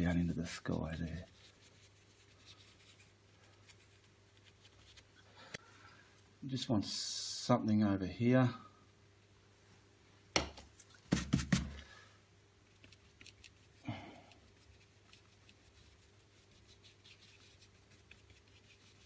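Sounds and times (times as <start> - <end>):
brush dabbing on canvas: 0.0 - 5.1, 11.0 - 11.8, 12.7 - 19.0.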